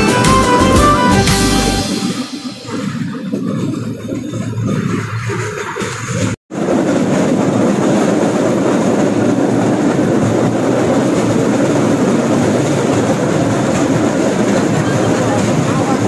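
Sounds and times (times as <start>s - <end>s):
rail cart wheels rattling on rails: 0.0s - 16.0s.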